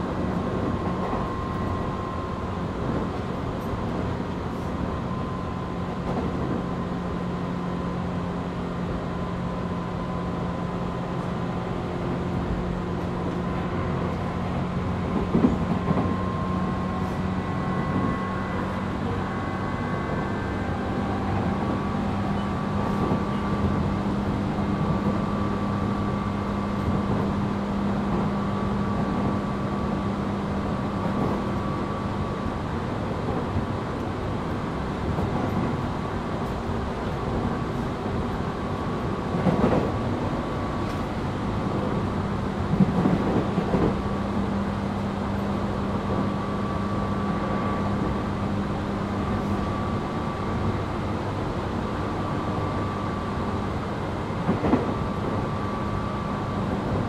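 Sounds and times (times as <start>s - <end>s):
electric train hum: 0.0s - 57.0s
wheel and rail noise: 0.0s - 57.0s
train clattering: 12.2s - 19.8s, 20.4s - 29.4s, 32.8s - 44.5s, 54.2s - 57.0s.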